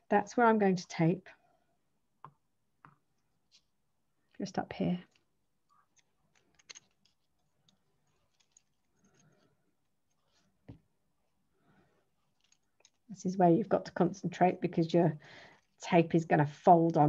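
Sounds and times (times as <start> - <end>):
tape rustling: 5.0 - 10.9, 12.2 - 13.1.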